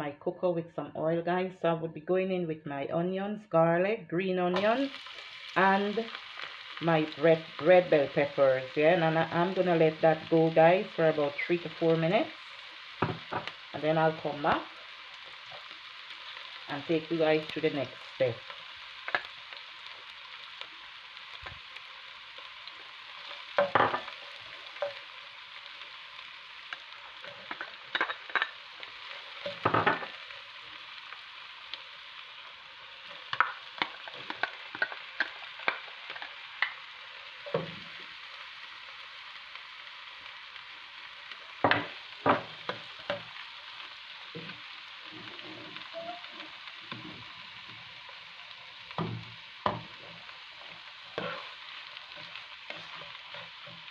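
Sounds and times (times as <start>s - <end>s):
onions sizzling in hot oil: 4.5s - 53.9s
spoon scraping a pan: 26.7s - 30.3s, 44.4s - 53.9s.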